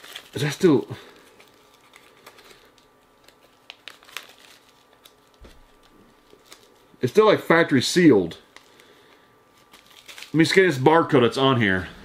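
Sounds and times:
plastic package crinkling: 0.0s - 7.0s, 8.4s - 10.9s.

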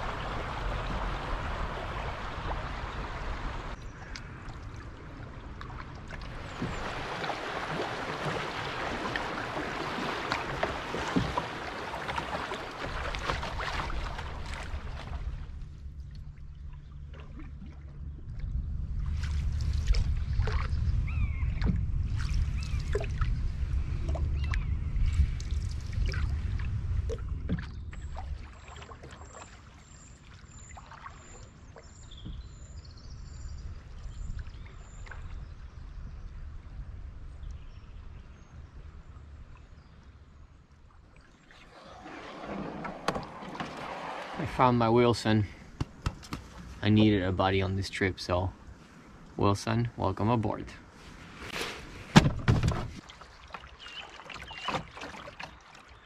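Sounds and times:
river water rushing past canoe: 0.0s - 3.8s, 6.0s - 15.6s, 41.4s - 47.3s
low rumble: 14.4s - 28.4s.

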